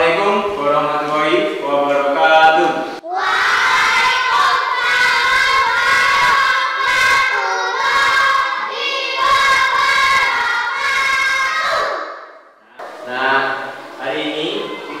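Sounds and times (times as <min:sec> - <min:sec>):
children singing in unison: 0:03.0 - 0:12.5.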